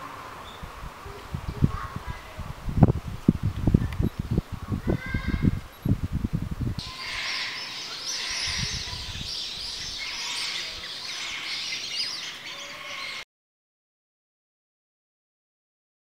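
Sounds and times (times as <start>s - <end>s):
birds chirping and chattering: 3.3s - 6.0s, 6.8s - 13.2s.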